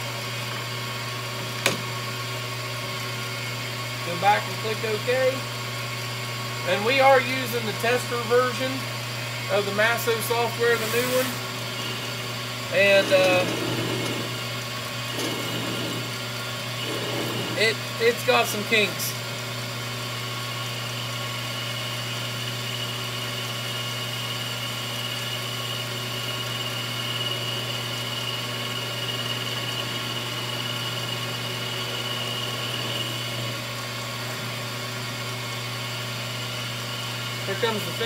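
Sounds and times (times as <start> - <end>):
lathe spindle motor hum: 0.0 - 38.0.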